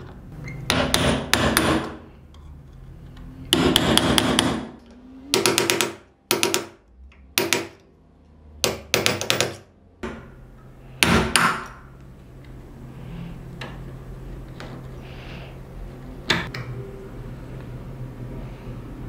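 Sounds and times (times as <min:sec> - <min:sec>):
hammer striking steel punch: 0:03.5 - 0:07.8.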